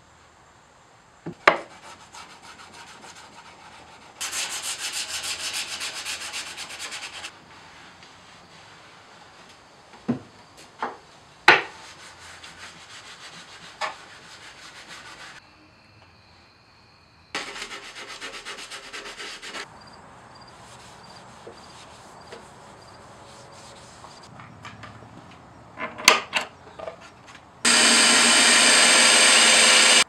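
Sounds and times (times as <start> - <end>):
sandpaper sanding wood: 1.6 - 7.3, 11.7 - 15.4, 17.4 - 19.7, 20.6 - 24.3, 27.7 - 30.0.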